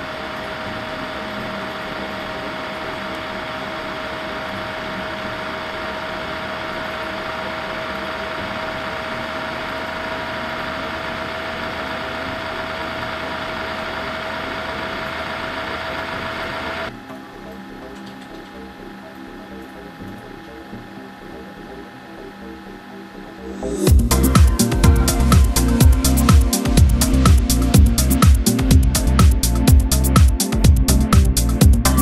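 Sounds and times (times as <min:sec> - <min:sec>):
laptop cooling fan running: 0:00.0 - 0:32.0.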